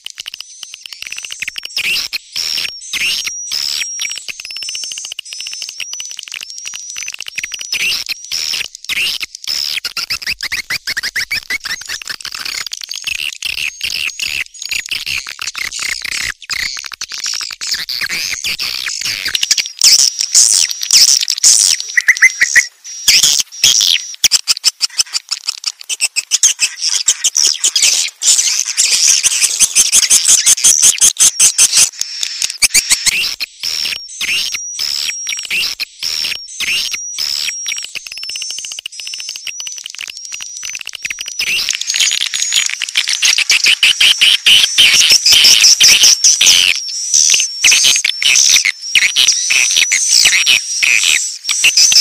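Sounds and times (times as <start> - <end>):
repeated short chirps: 0.0 - 52.0
swiftlets twittering: 15.6 - 52.0.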